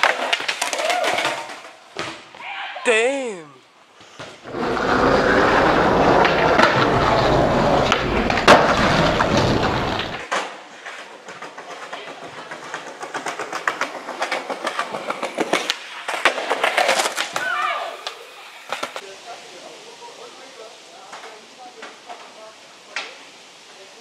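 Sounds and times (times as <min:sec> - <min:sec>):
skateboard wheels rolling on concrete: 0:00.0 - 0:02.8, 0:03.6 - 0:24.0.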